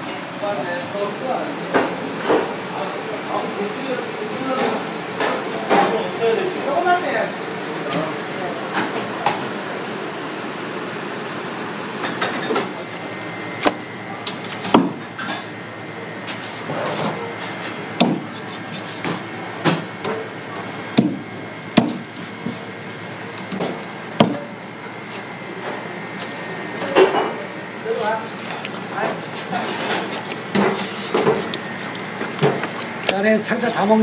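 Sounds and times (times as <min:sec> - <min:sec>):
knife striking wooden block: 0:18.0 - 0:18.3.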